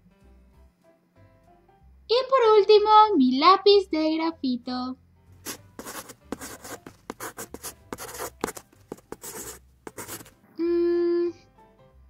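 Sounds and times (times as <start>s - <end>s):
pencil scribbling on paper: 5.4s - 10.3s.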